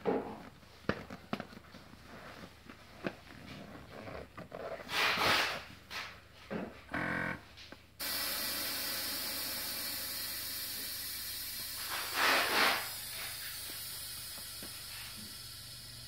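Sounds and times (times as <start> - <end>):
air hissing from valve: 8.0 - 16.0.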